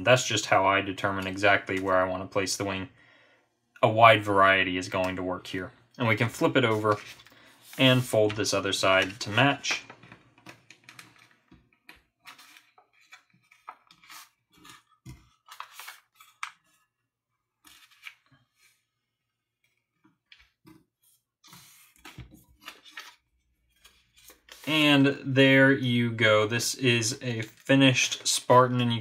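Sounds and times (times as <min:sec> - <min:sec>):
paper rustling and crinkling: 0:06.2 - 0:16.9, 0:17.6 - 0:18.8, 0:19.7 - 0:24.7.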